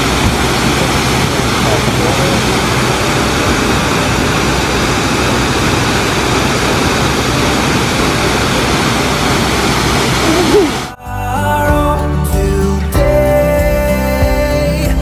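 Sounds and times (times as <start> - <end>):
waterfall rushing: 0.0 - 11.0.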